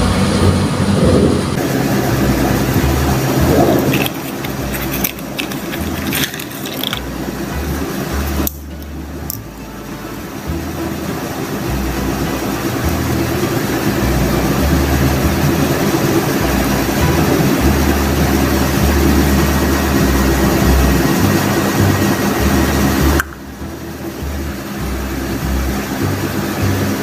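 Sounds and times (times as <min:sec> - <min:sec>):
low machine drone: 0:00.0 - 0:27.0
small items clicking and rattling: 0:03.7 - 0:07.1.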